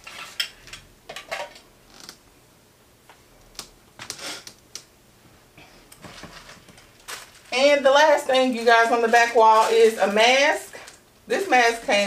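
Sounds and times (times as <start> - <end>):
rummaging in a tote bag: 6.0 - 12.0.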